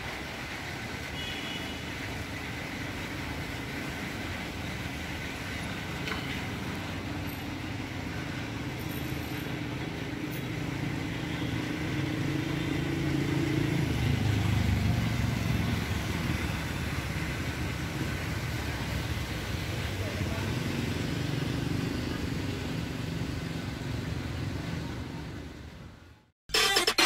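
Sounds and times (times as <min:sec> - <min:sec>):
road traffic: 0:00.0 - 0:27.0.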